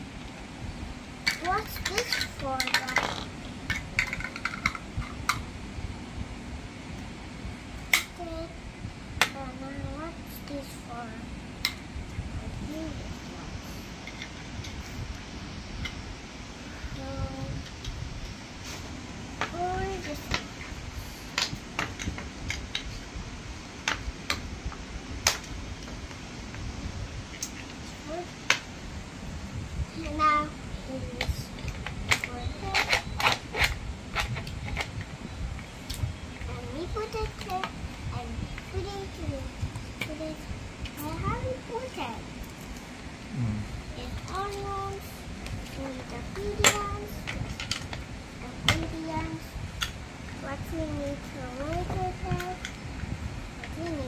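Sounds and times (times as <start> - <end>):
plastic toy pieces clattering: 1.3 - 4.8.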